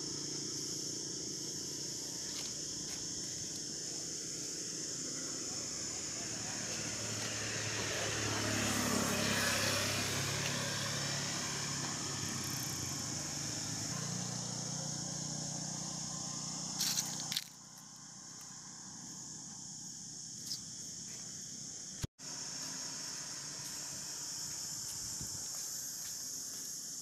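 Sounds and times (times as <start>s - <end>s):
vehicle engine hum: 0.0s - 26.8s.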